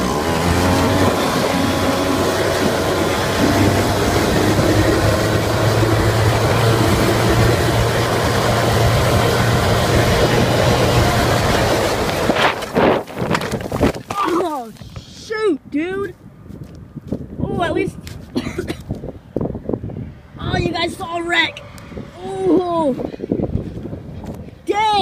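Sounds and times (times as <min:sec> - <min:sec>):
quad engine running: 0:00.0 - 0:14.6
wind noise: 0:00.0 - 0:25.0.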